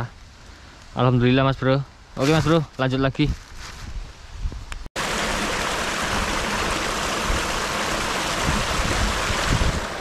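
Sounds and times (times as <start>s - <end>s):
water rushing over rocks: 5.0s - 10.0s.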